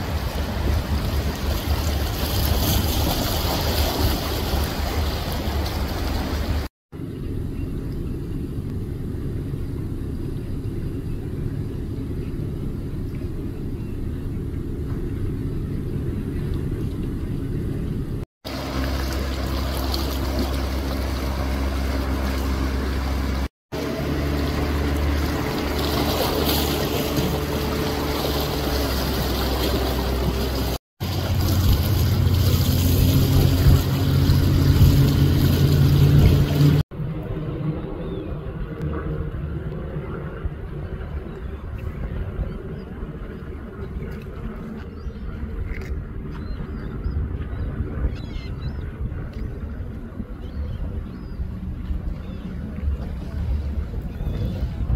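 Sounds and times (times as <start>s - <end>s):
motorboat engine: 0.0s - 54.9s
water noise: 0.0s - 54.9s
wind noise: 31.1s - 54.9s.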